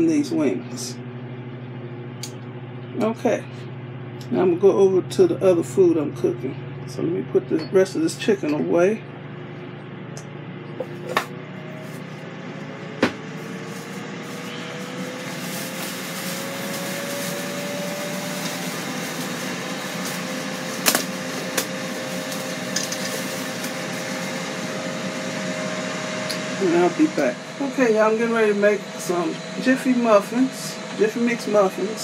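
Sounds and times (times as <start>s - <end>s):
grill fan whirring: 0.0s - 32.0s.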